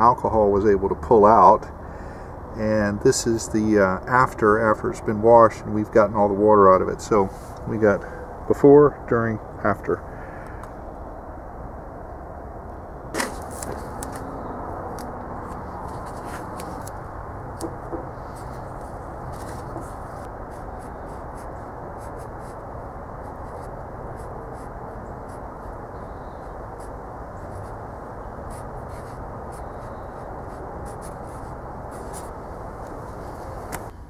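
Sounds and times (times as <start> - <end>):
marker scratching on metal: 28.5 - 32.4.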